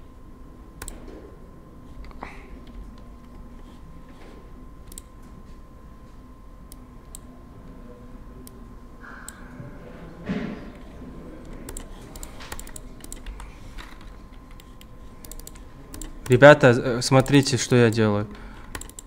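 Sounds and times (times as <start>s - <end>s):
faint steady whine: 0.0s - 19.0s
mouse and keyboard clicks: 10.8s - 16.4s.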